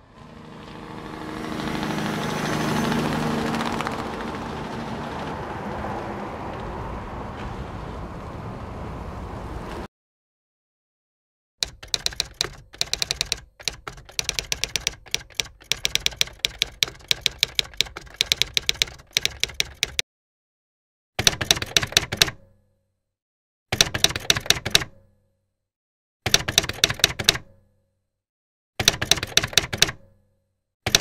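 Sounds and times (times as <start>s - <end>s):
typewriter keys clacking: 11.6s - 20.0s, 21.2s - 22.4s, 23.8s - 25.0s, 26.3s - 27.5s, 28.8s - 30.1s.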